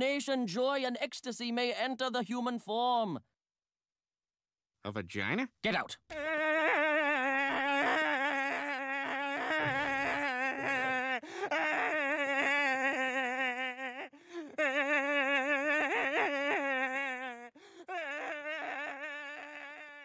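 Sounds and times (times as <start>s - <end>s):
cartoon man wailing with vibrato: 6.1s - 14.1s.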